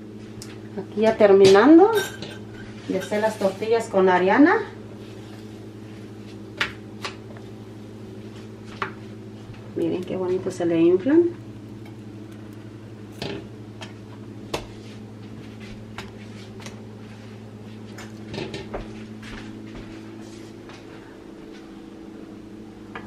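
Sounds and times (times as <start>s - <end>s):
kitchen appliance humming: 0.0s - 23.0s
dishes and utensils clinking: 1.4s - 3.4s.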